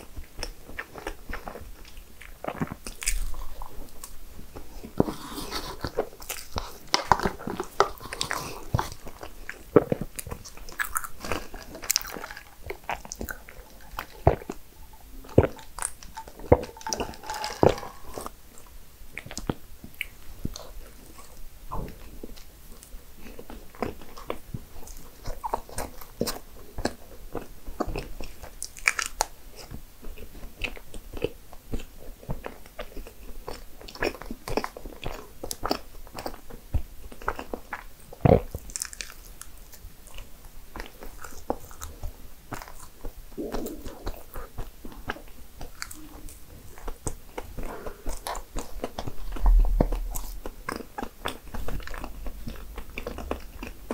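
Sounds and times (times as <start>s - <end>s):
chewing pastries: 0.0s - 53.9s
crisp crunches: 5.1s - 18.4s
mouth clicks: 43.4s - 44.5s.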